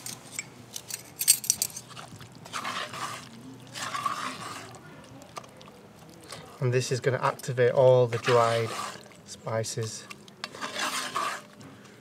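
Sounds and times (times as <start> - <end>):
spatula rasping in pot: 1.9 - 4.8, 8.1 - 9.2, 10.4 - 11.6.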